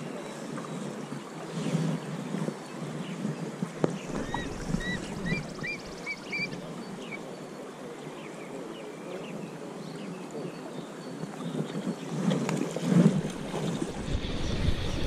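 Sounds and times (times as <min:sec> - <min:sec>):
wind on microphone: 0:00.0 - 0:07.2, 0:11.3 - 0:15.0
small bird chirping: 0:04.1 - 0:07.2
river water rushing: 0:13.0 - 0:15.0.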